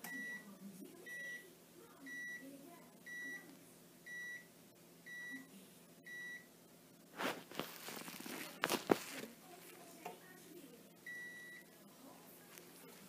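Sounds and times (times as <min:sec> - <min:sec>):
rustling: 0:07.1 - 0:10.0.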